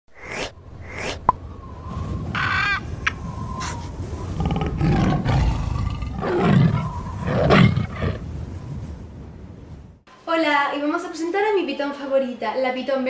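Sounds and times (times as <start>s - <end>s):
tiger roaring: 4.3s - 8.2s.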